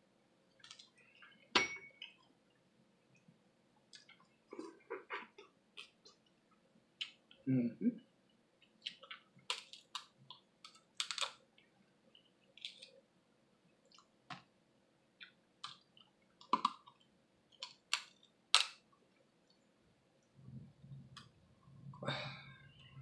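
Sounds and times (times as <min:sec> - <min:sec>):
crab shells breaking: 0:09.0 - 0:11.4, 0:17.6 - 0:18.8.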